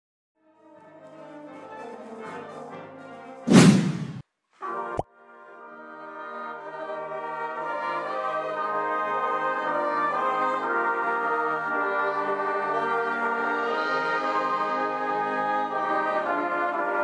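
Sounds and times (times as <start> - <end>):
wind band playing held chords: 6.9 - 17.0.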